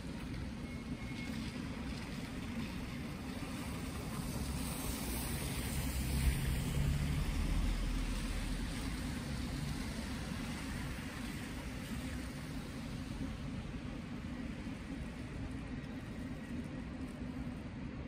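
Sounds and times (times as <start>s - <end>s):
street traffic rumble: 0.0s - 18.0s
vehicle driving past: 4.4s - 10.8s.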